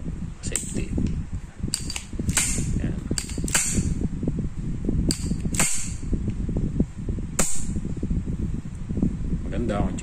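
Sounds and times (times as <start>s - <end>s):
pistol action clicking: 1.7s - 2.6s.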